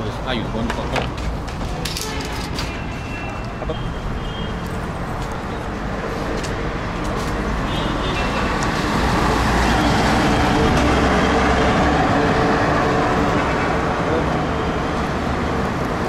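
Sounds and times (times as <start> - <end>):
road traffic: 0.0 - 16.0
truck engine passing: 8.3 - 16.0.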